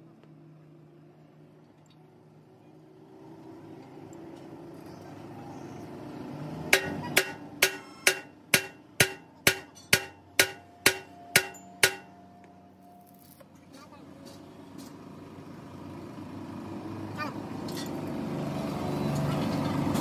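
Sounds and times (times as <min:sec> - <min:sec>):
hammer striking steel: 0:06.7 - 0:12.2.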